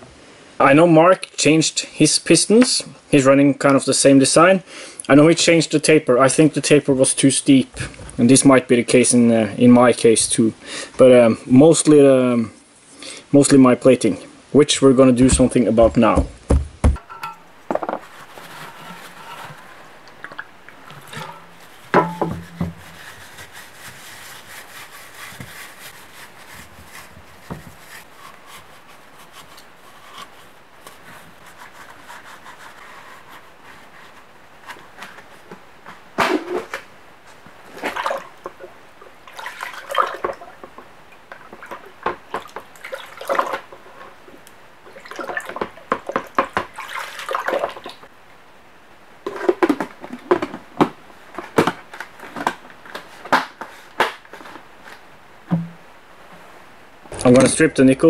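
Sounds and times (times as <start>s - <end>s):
knock: 16.2s - 17.0s, 55.5s - 55.8s
liquid splashing in a plastic bucket: 18.3s - 27.9s, 37.7s - 43.8s, 44.9s - 48.1s.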